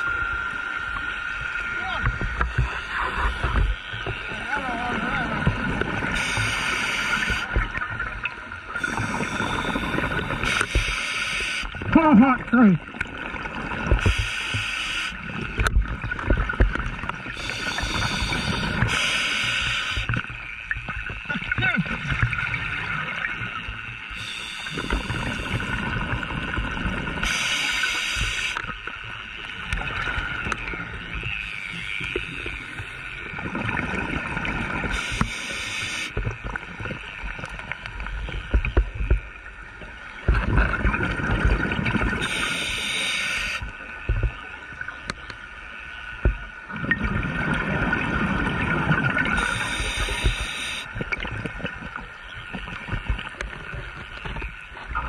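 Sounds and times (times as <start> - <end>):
regulator inhale hiss: 6.2 - 7.4, 8.8 - 11.7, 14.0 - 15.2, 17.4 - 20.1, 24.1 - 25.8, 27.2 - 28.6, 34.9 - 36.1, 42.2 - 43.6, 49.4 - 50.9
exhaled bubbles rumbling: 33.2 - 34.9, 40.2 - 42.2, 46.2 - 50.3.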